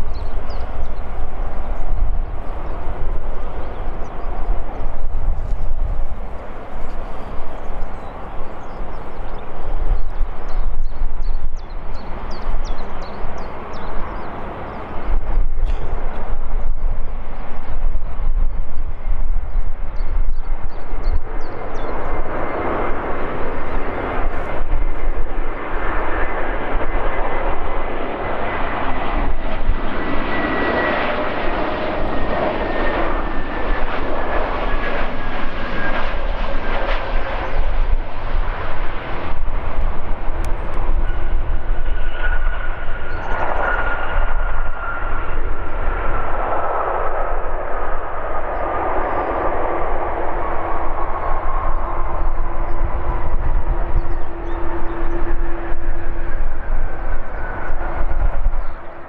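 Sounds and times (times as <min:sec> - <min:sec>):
jet engines rumbling: 0:00.0 - 0:59.0
second jet engine whine: 0:00.0 - 0:59.0.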